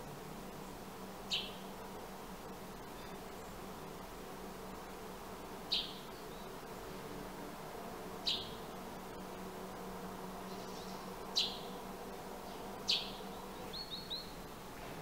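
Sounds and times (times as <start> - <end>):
low background hum: 0.0 - 15.0
sparrow chirping: 1.3 - 1.7, 5.7 - 6.6, 8.2 - 8.7, 10.4 - 11.8, 12.4 - 14.6.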